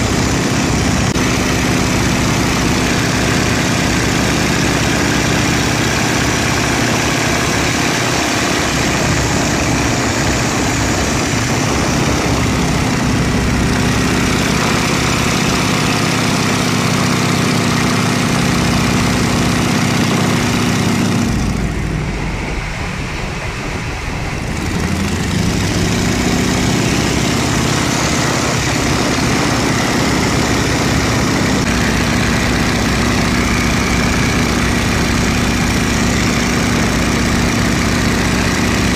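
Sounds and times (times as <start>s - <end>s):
biplane engine and propeller: 0.0s - 38.9s
wind rush: 17.7s - 37.4s.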